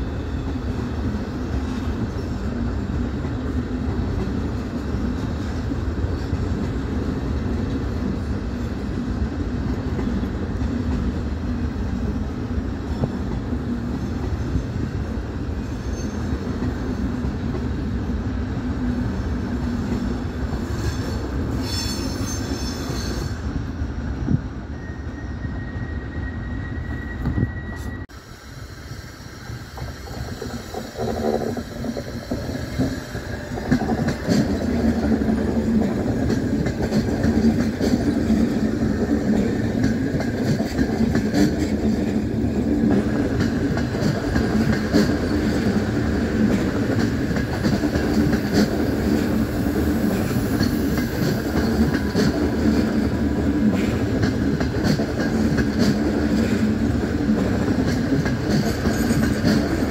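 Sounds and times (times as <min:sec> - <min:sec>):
train wheels rumbling on rails: 0:00.0 - 0:59.9
high wheel squeal: 0:20.7 - 0:23.5, 0:24.7 - 0:28.1.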